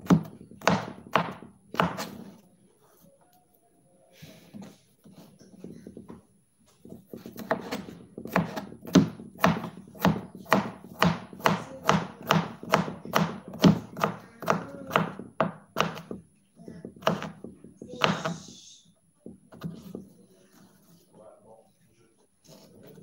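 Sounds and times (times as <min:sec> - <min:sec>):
knife chopping on cutting board: 0:00.0 - 0:02.4, 0:06.8 - 0:16.2, 0:16.8 - 0:18.4.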